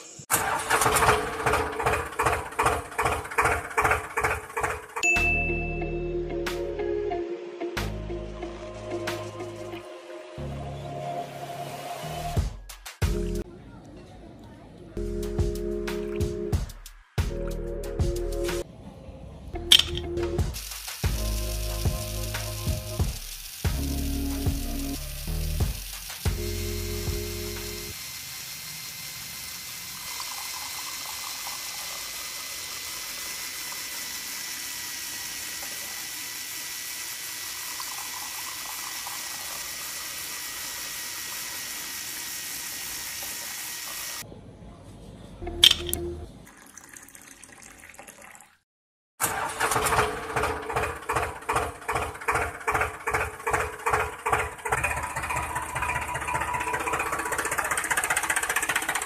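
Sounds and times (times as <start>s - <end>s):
small water pump running: 0.3s - 5.4s, 19.7s - 44.2s, 49.2s - 59.0s
sharp click: 19.7s - 20.2s, 45.6s - 46.1s
toy motor and gears pulsing: 19.7s - 44.2s.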